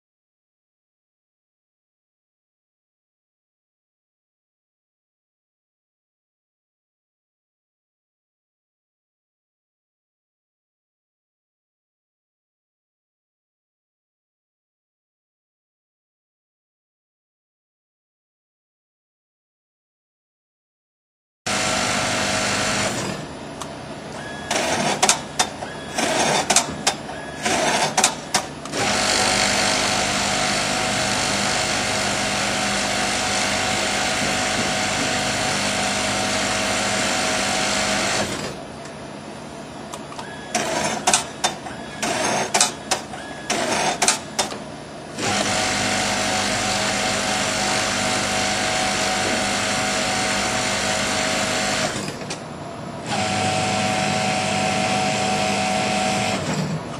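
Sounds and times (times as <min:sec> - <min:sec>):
industrial sewing machine stitching: 0:21.5 - 0:23.3, 0:24.2 - 0:38.6, 0:40.4 - 0:52.3, 0:53.0 - 0:56.9.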